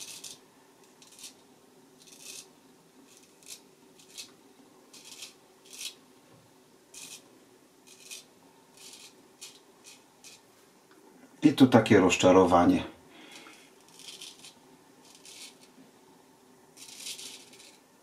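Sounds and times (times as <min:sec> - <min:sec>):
razor scraping stubble: 0:00.0 - 0:01.4, 0:02.0 - 0:02.5, 0:03.1 - 0:06.0, 0:06.9 - 0:10.5, 0:13.3 - 0:15.7, 0:16.8 - 0:17.8.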